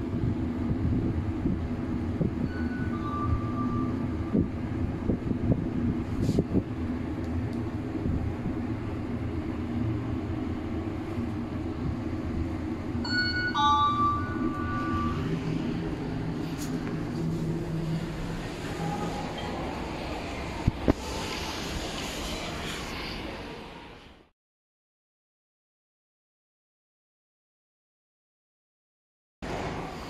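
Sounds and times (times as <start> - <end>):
lift car humming and rumbling: 0.0 - 24.3, 29.4 - 30.0
lift arrival chime: 2.4 - 4.4, 13.0 - 15.8.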